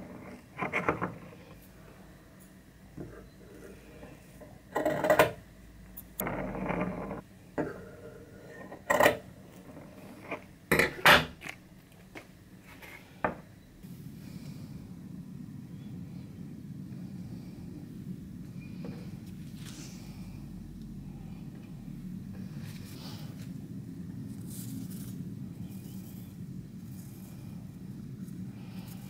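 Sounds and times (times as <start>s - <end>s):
soft steady hiss: 7.2s - 29.0s.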